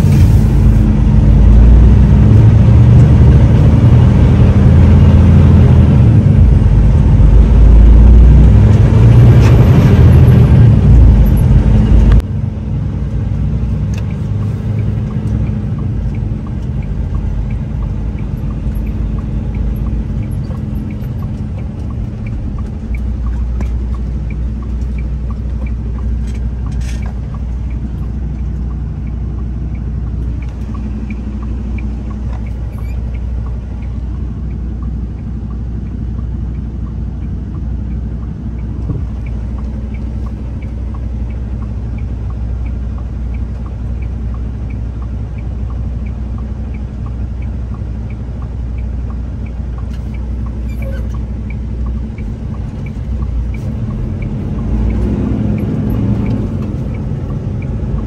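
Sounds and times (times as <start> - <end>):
diesel truck engine rumble: 0.0 - 58.0
light ticking: 13.9 - 58.0.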